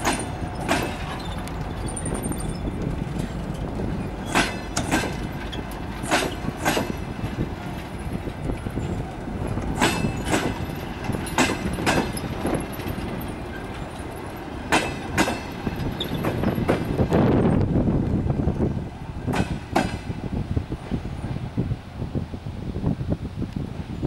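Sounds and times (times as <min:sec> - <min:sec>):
train wheels clacking over rail joints: 0:00.0 - 0:17.7, 0:19.2 - 0:20.2.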